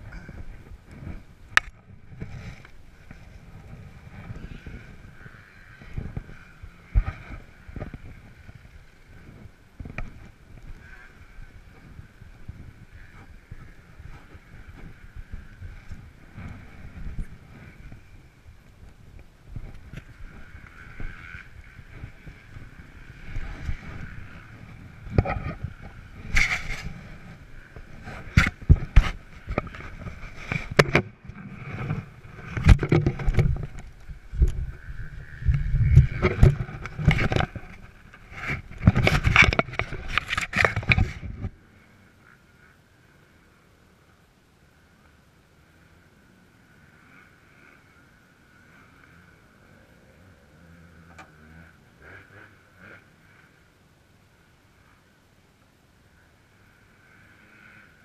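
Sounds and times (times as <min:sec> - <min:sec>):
wind rumbling on microphone: 0:00.0 - 0:43.6
faint background hiss: 0:00.0 - 0:58.0.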